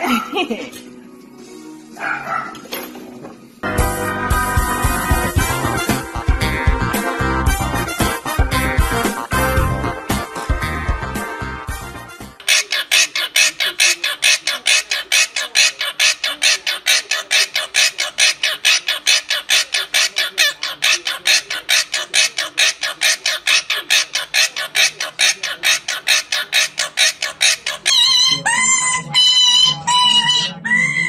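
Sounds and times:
parrot squawking: 0:12.4 - 0:31.0.

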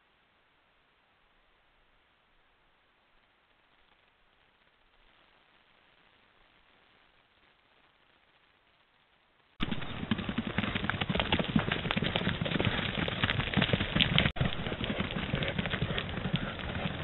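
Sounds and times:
hooves clicking on ground: 0:09.6 - 0:17.0.

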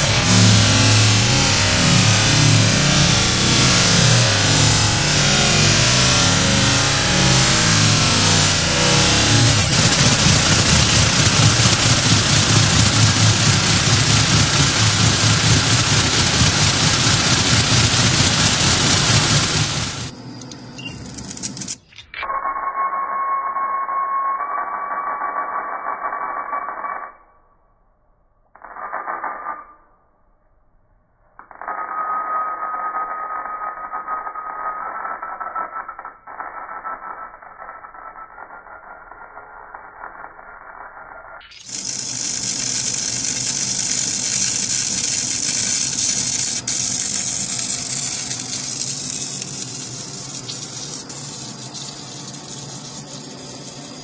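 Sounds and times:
vibratory tumbler rattling: 0:00.0 - 0:21.9, 0:36.5 - 0:54.0
machine tool cutting metal: 0:00.0 - 0:22.1, 0:32.8 - 0:54.0
low hum: 0:00.0 - 0:28.7, 0:35.7 - 0:54.0.

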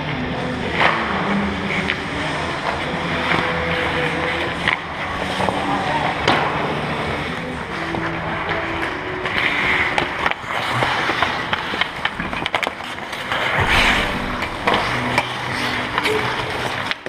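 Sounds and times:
hockey sticks and pucks clacking: 0:00.2 - 0:13.4
skate blades scraping ice: 0:08.3 - 0:13.6.

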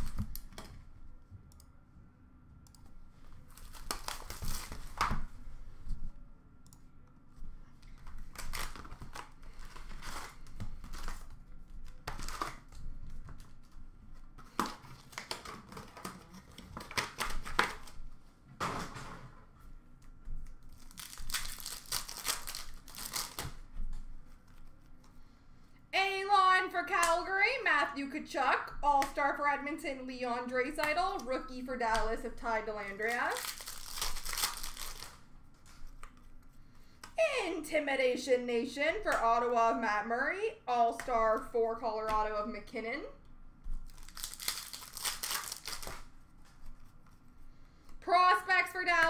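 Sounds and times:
wrappers tearing and crinkling: 0:03.4 - 0:05.0, 0:08.1 - 0:11.3, 0:20.6 - 0:23.7, 0:32.9 - 0:35.9, 0:43.8 - 0:46.1.

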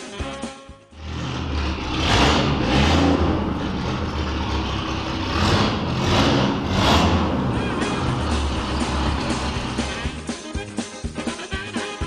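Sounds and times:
car engine revving: 0:01.0 - 0:10.2.

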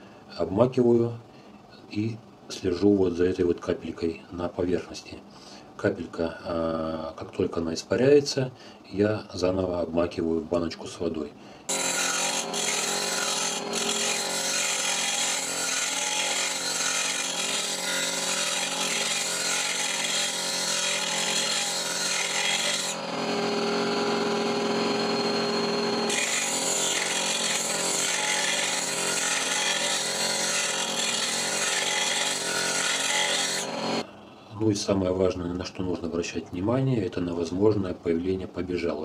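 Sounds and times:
grinder grinding steel chisel: 0:11.7 - 0:34.1
grinder motor hum: 0:11.7 - 0:34.1.

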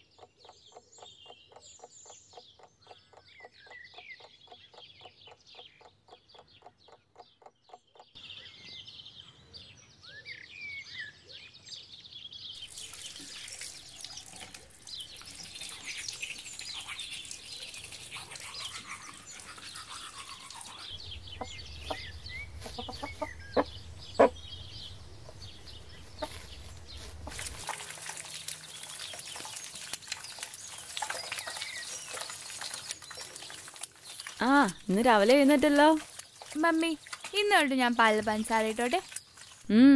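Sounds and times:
small birds chirping: 0:00.0 - 0:39.9
teeth being brushed: 0:12.7 - 0:23.4, 0:27.1 - 0:39.7
hens clucking: 0:18.2 - 0:24.5.

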